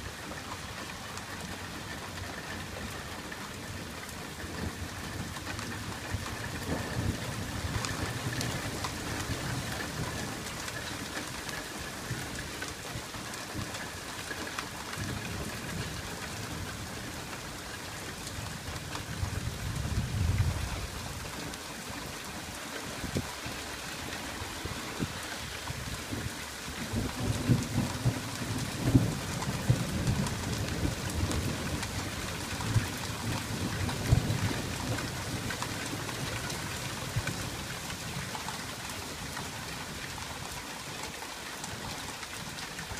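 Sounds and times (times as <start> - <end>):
rain falling on wet pavement: 0.0 - 42.9
thunder rumbling: 24.6 - 37.7.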